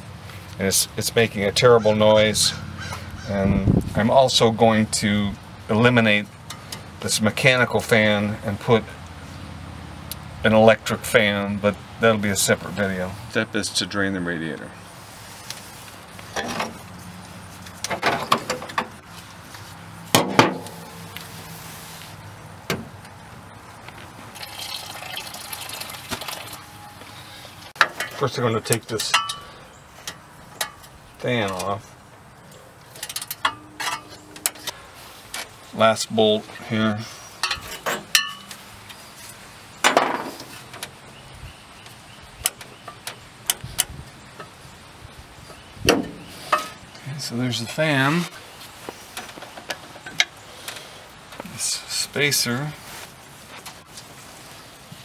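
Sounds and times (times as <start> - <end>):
coolant pouring into pan: 24.3 - 26.6
metal scraping: 32.9 - 35.6.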